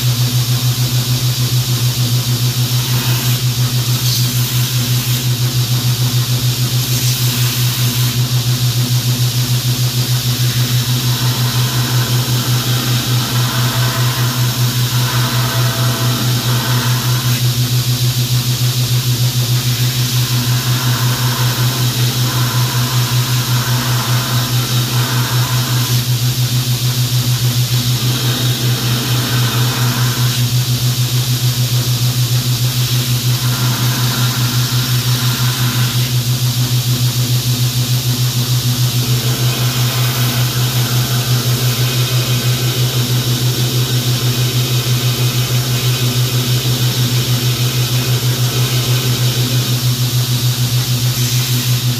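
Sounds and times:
belt grinder humming: 0:09.7 - 0:17.5, 0:19.5 - 0:26.2, 0:27.4 - 0:30.5, 0:38.8 - 0:51.9
blade grinding on belt: 0:10.1 - 0:17.4, 0:19.6 - 0:26.1, 0:27.6 - 0:30.5, 0:32.9 - 0:36.2, 0:38.8 - 0:50.2.

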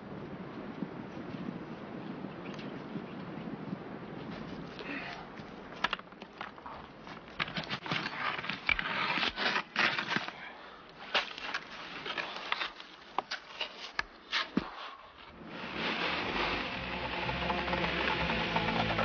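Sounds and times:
snow crunching and scraping: 0:06.7 - 0:19.0.

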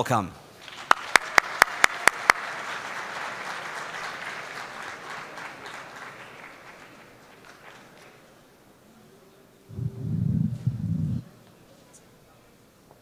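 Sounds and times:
loud sharp claps: 0:00.6 - 0:08.2
audience applauding: 0:00.6 - 0:08.3.

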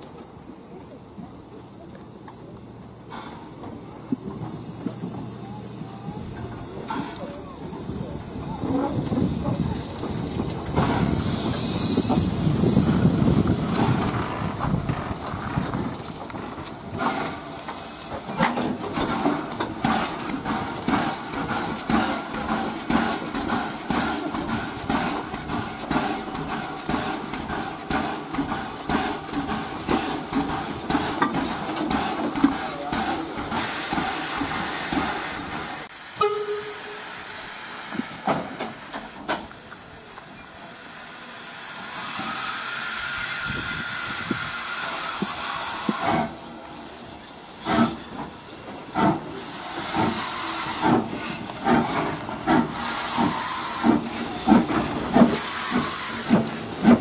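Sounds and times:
steam locomotive hissing steam: 0:00.0 - 0:57.0
locomotive rhythmic chugging beat: 0:18.2 - 0:36.4, 0:48.9 - 0:57.0.

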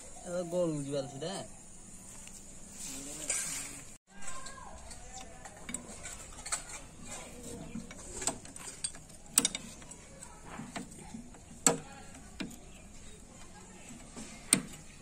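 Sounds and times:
tool clanking on metal casing: 0:04.4 - 0:15.0.

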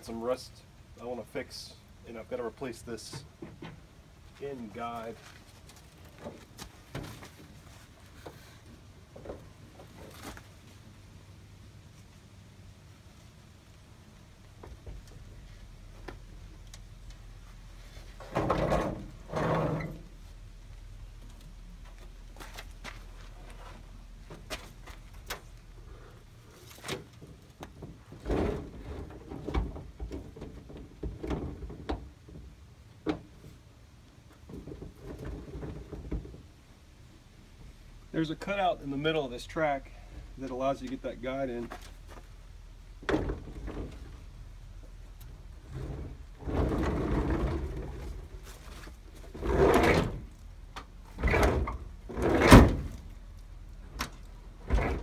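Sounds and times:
sliding van door running along track: 0:45.6 - 0:50.3, 0:51.1 - 0:53.2.

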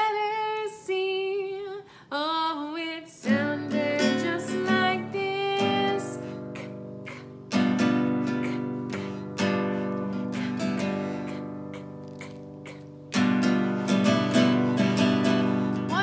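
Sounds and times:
acoustic guitar strumming chords: 0:03.3 - 0:16.0.

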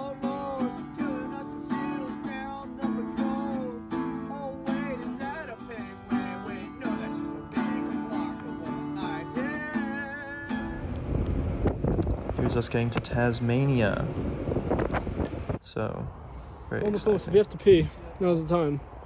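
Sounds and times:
man singing: 0:00.0 - 0:11.0
acoustic guitar strumming: 0:00.0 - 0:15.6.

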